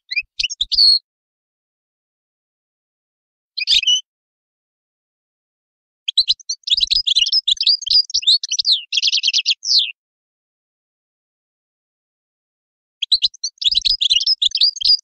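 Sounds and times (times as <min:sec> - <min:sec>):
finch twittering and trilling: 0:00.0 - 0:01.0, 0:03.6 - 0:04.0, 0:06.1 - 0:10.0, 0:13.0 - 0:15.0.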